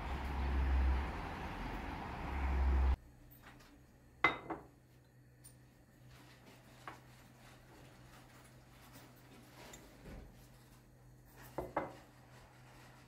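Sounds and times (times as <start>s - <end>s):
outdoor rumble: 0.0s - 3.0s
teapot clinking on stone counter: 4.2s - 4.7s.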